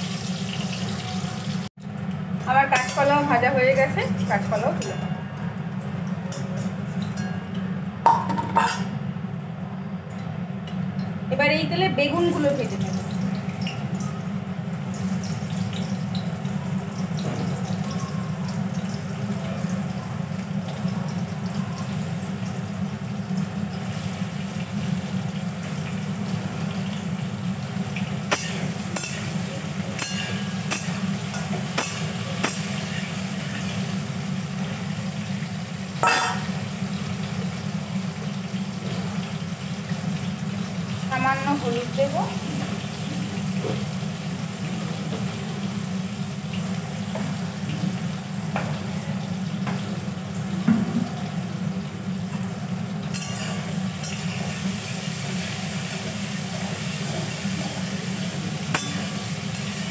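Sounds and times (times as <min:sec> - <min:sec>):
vegetables sizzling in hot oil: 0:00.0 - 0:05.2, 0:11.3 - 0:59.9
ringing metal knock: 0:36.0 - 0:36.5.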